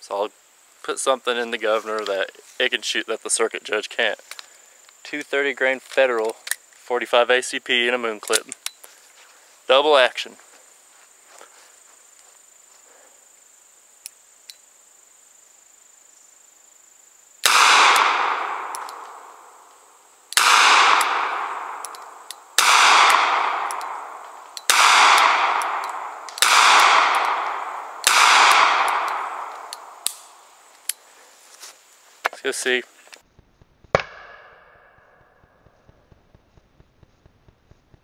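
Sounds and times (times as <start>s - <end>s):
revolver shots with echo: 20.4s - 30.4s.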